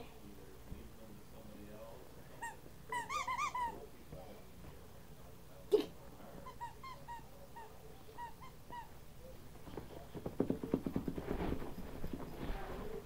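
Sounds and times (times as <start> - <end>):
rapid clicks and rustling: 9.7 - 12.6.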